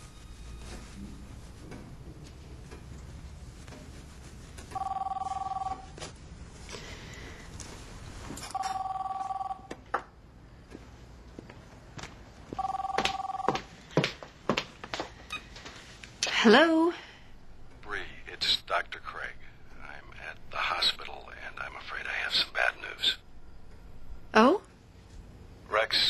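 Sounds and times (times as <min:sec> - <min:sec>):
telephone ringing: 0:04.8 - 0:06.0, 0:08.5 - 0:09.8, 0:12.5 - 0:13.8.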